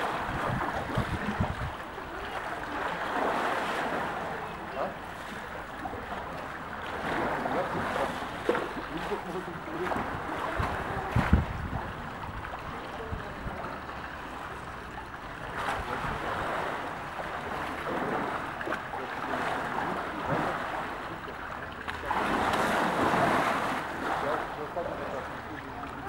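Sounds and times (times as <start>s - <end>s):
water sloshing: 0.0s - 26.0s
water jet splashing into pool: 21.8s - 26.0s.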